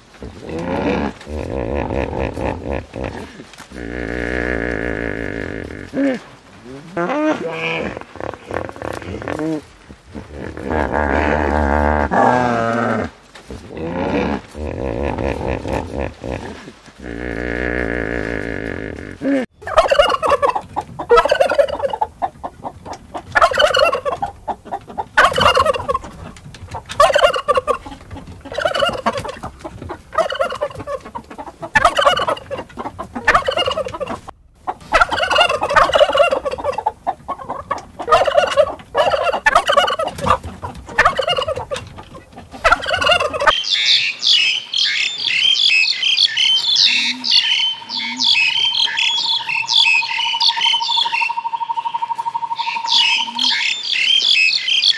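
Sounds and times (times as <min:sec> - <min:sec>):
turkey gobbling: 0:19.6 - 0:54.9
high twittering birdsong: 0:43.5 - 0:54.9.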